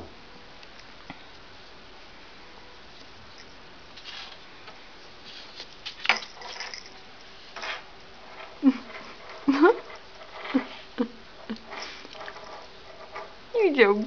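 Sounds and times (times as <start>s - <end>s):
soft fur rustling and brushing: 2.8s - 6.0s.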